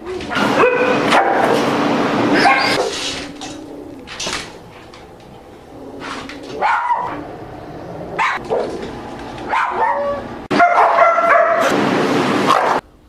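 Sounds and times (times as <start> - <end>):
dog barking: 0.3 - 1.6, 2.4 - 2.9, 6.6 - 7.2, 8.2 - 8.8, 9.5 - 11.8, 12.5 - 12.8.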